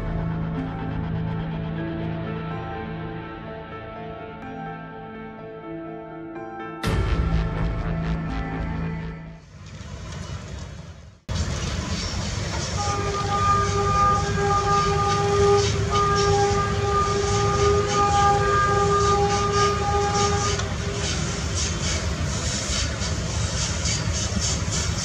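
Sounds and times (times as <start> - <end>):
locomotive rumbling on track: 9.4 - 25.0
locomotive horn chord: 12.4 - 21.1.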